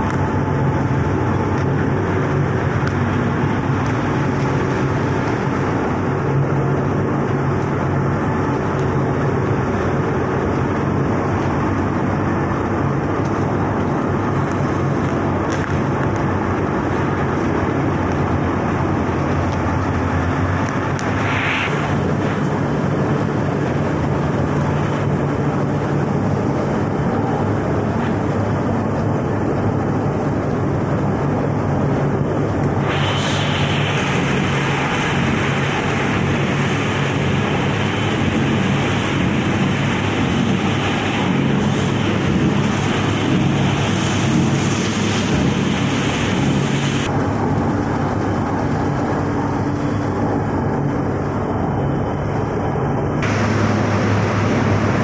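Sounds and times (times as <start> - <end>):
industrial machine motor hum: 0.0 - 55.0
bright hiss: 21.0 - 22.4, 32.8 - 47.1.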